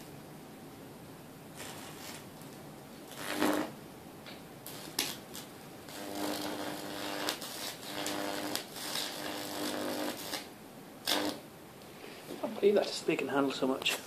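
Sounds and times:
electric arc buzzing and crackling: 1.6 - 11.5
sharp electric snap: 3.1 - 11.4.

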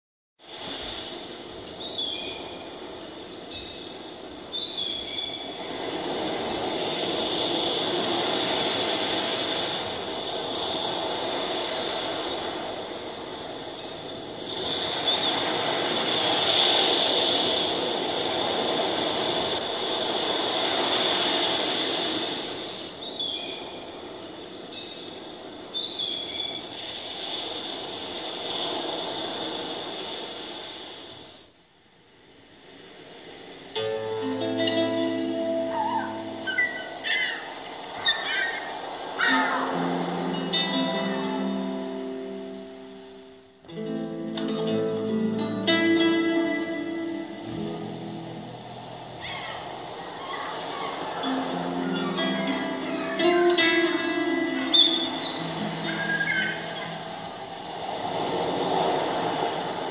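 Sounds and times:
sea waves rushing: 0.4 - 59.9
short bird calls: 35.8 - 39.7, 54.8 - 57.1.

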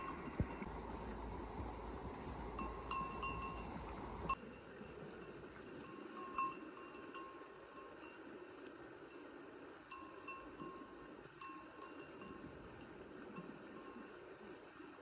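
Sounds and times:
small bell clinking: 0.0 - 0.6, 2.5 - 3.8
stream rushing: 0.0 - 15.0.

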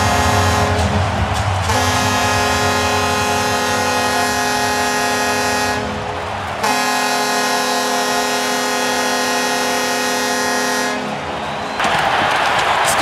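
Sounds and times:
goal horn blowing: 0.0 - 0.9, 1.7 - 6.0, 6.6 - 11.2.

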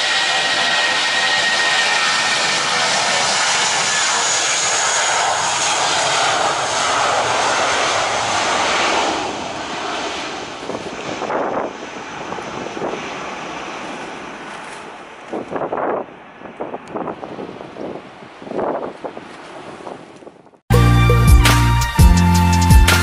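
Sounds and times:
jet engines roaring: 0.0 - 20.1
wind gusts on microphone: 5.7 - 20.6.

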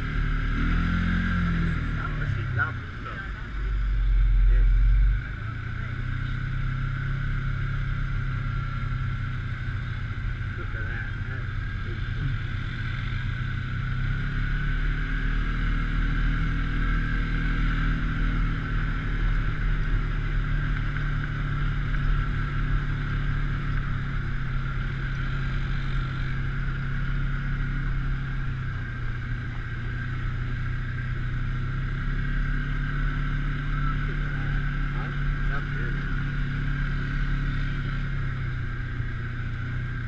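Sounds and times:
motorboat engine running: 0.0 - 40.0.

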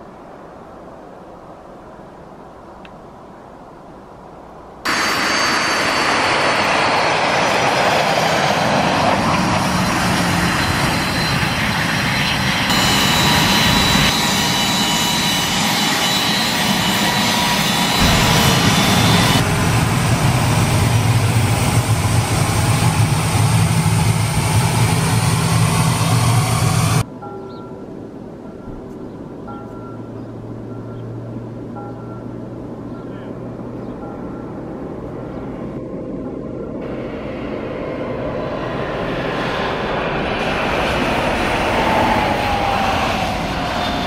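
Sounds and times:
jet engines whining: 4.9 - 27.1, 36.8 - 44.0
deep hum: 17.9 - 27.0.

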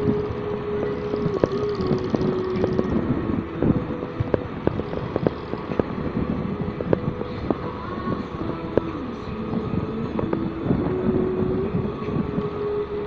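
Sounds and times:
motorcycle engine running: 0.0 - 8.4
wind and road noise: 0.0 - 13.0.

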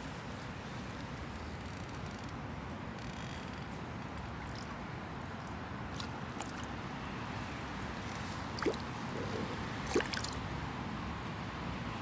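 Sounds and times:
fish splashing at water surface: 4.4 - 6.9, 8.0 - 10.5.

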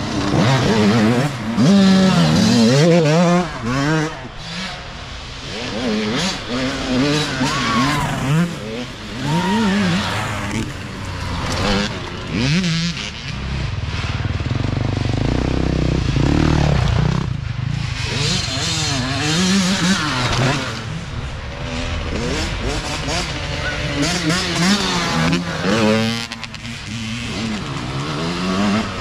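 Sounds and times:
dirt bike engines revving: 0.0 - 29.0.

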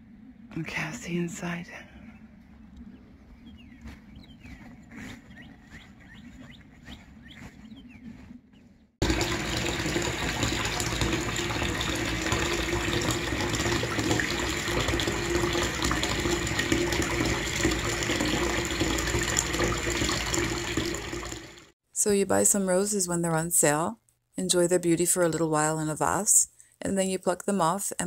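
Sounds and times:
tap water pouring into bathtub: 9.0 - 21.7.

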